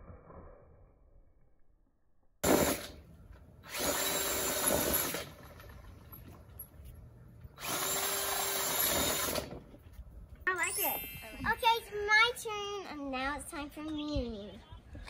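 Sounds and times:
power drill spinning with faint whine: 3.6s - 5.5s, 7.6s - 9.6s.

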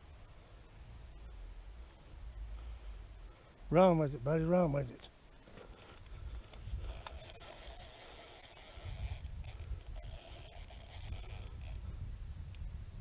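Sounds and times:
fishing reel drag buzzing: 6.8s - 11.9s.

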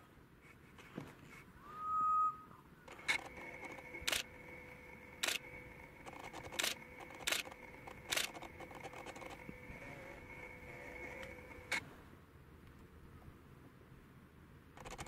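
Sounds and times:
whistled note: 1.6s - 2.6s.

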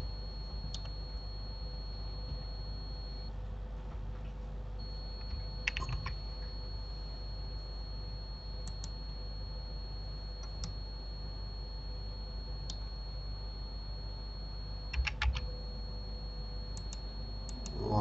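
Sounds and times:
faint high whine: 0.0s - 18.0s
steady low hum: 0.0s - 18.0s
keyboard key presses: 5.2s - 6.2s, 14.9s - 15.4s.

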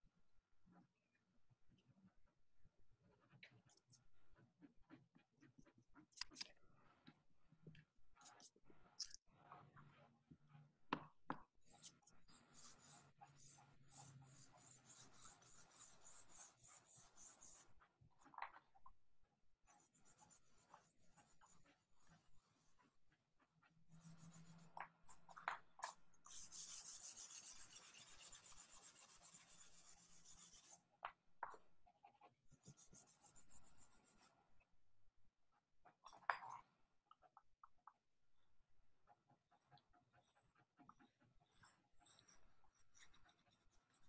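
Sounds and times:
pencil scratching on paper: 3.0s - 7.1s, 8.2s - 10.8s, 11.6s - 18.6s, 19.6s - 34.5s, 39.0s - 44.0s.

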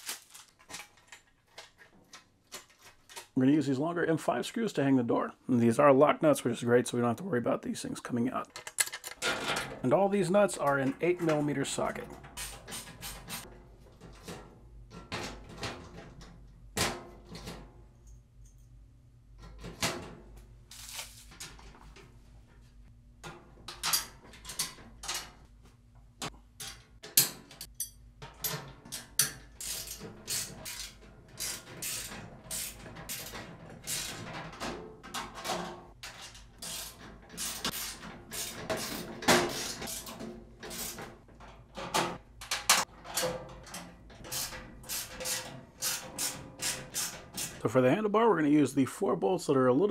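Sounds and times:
steel parts knocking and scraping: 8.5s - 17.7s, 26.2s - 47.6s.

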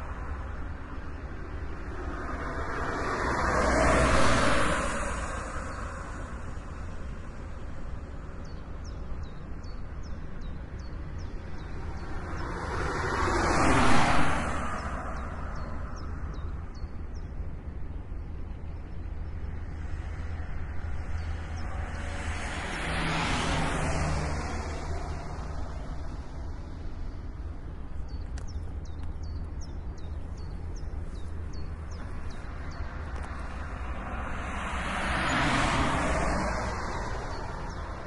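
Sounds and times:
traffic rumble: 0.0s - 38.0s
vehicle passing by: 1.7s - 6.6s, 19.8s - 26.8s, 31.5s - 38.0s.

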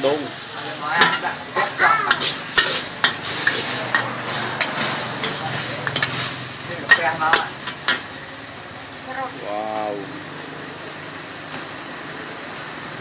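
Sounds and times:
meat and vegetables sizzling: 0.0s - 13.0s
metal ladles clacking on wok: 1.0s - 8.1s.

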